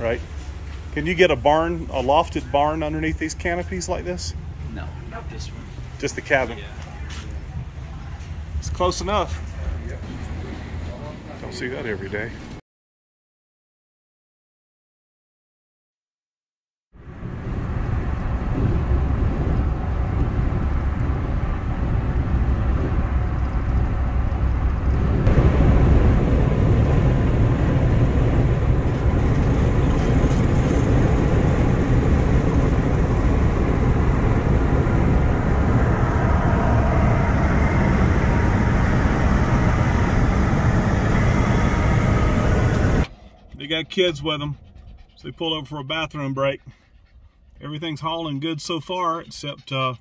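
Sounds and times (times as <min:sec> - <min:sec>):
car road noise rumble: 0:17.0 - 0:47.4.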